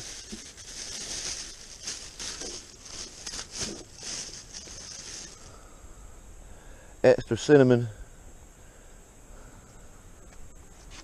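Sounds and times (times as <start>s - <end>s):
plastic bag rustling and crinkling: 0.0s - 5.5s.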